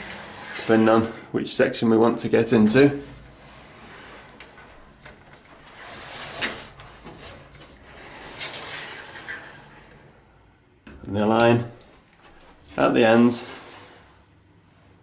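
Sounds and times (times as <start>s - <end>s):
sliding wardrobe doors rolling: 0.0s - 1.4s, 2.3s - 10.4s, 12.7s - 14.3s.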